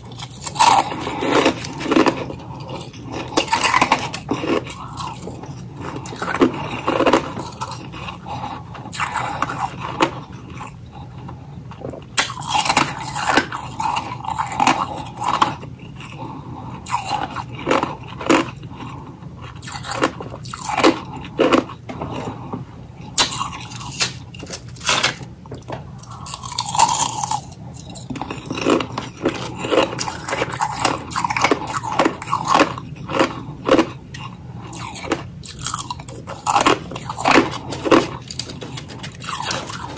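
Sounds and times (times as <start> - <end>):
crunchy ice chewing: 0.0 - 39.9.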